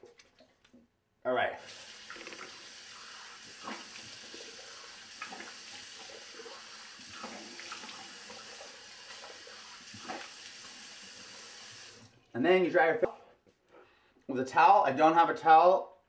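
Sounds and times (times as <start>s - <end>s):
water splashing on face: 1.7s - 12.0s
sink tap running: 1.7s - 12.1s.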